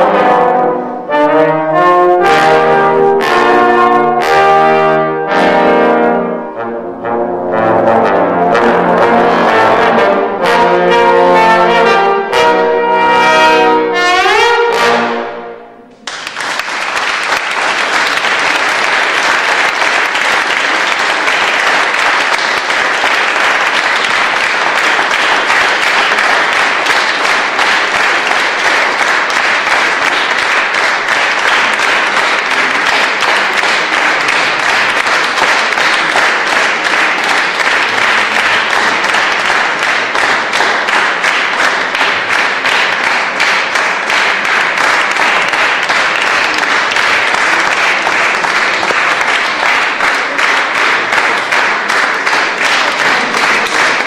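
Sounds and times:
trombone quartet playing: 0:00.0 - 0:16.0.

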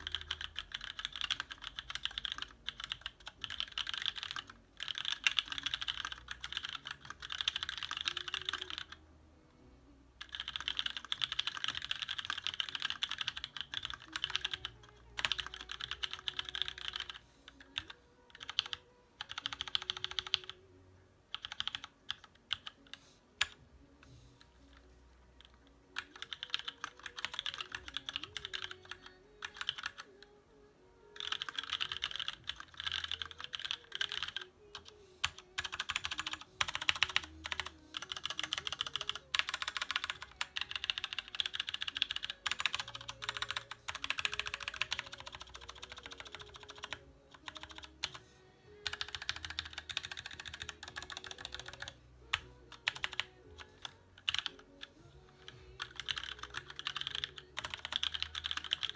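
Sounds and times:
faint music: 0:00.0 - 0:58.9.

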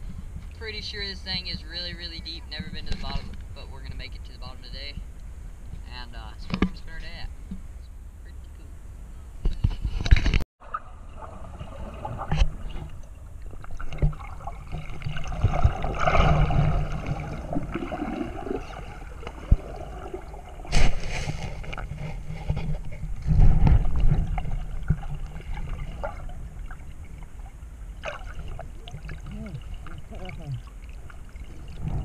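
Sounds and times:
muffled underwater water movement: 0:00.0 - 0:32.0
bubbling and sloshing: 0:09.9 - 0:32.0.

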